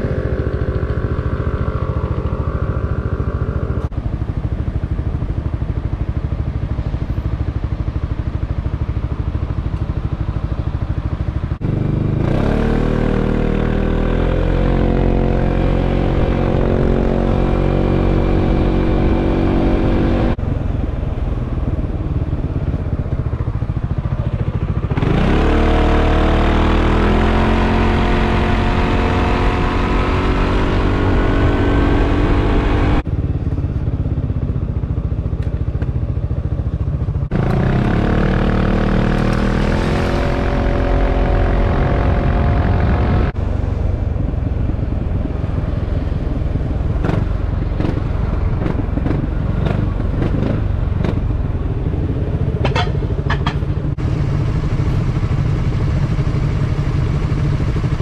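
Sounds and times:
scooter engine accelerating: 11.6 - 20.8, 21.7 - 58.0
wind noise: 13.8 - 25.4, 26.9 - 33.6, 37.3 - 58.0.

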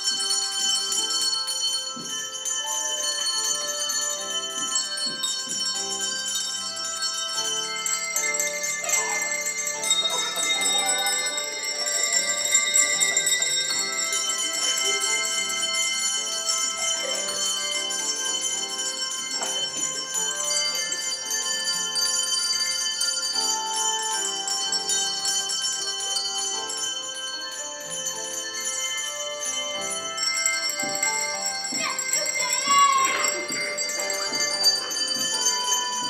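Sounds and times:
handbells ringing a tune: 0.0 - 36.0.

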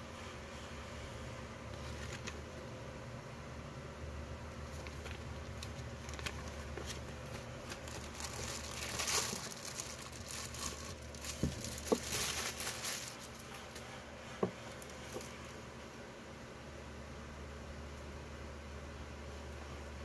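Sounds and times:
plastic bag crinkling: 4.6 - 13.8.

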